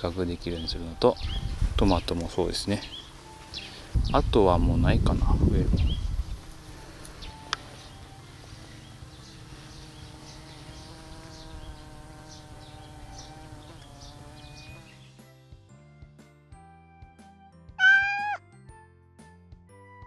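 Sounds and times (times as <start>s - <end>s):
flying insect buzzing: 2.8s - 4.1s, 5.7s - 15.3s.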